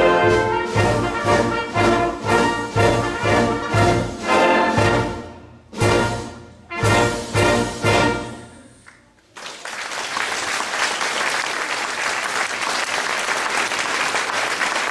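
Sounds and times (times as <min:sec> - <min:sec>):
wind band brass chord: 0:00.0 - 0:08.6
audience applause: 0:09.2 - 0:14.9.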